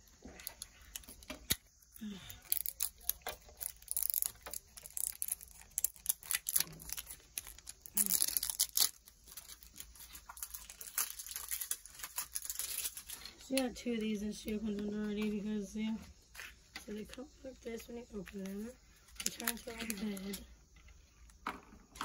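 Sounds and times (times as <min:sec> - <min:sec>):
plastic packaging tearing and crinkling: 0:00.2 - 0:13.4, 0:19.1 - 0:20.4
plastic pieces clicking on table: 0:02.5 - 0:08.9.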